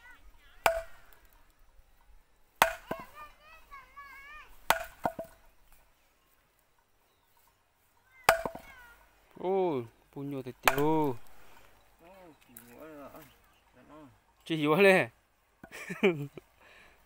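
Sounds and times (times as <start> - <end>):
log knocking onto wooden stakes: 0.6 - 1.4, 2.6 - 3.2, 4.5 - 5.8, 8.2 - 8.8, 10.5 - 11.4.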